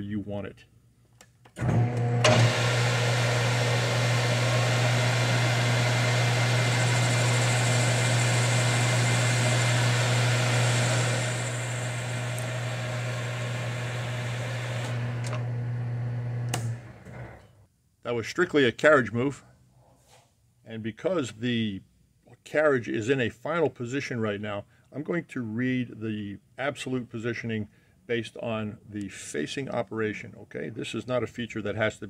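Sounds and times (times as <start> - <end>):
lathe motor hum: 1.7 - 17.4.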